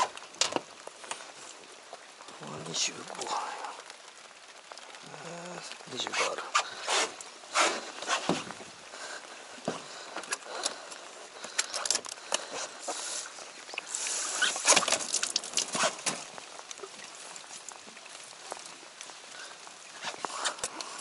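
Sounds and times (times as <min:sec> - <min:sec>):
rain clothing rustling: 0:00.0 - 0:21.0
water splashing: 0:00.0 - 0:21.0
gear clicks and knocks: 0:09.6 - 0:12.5.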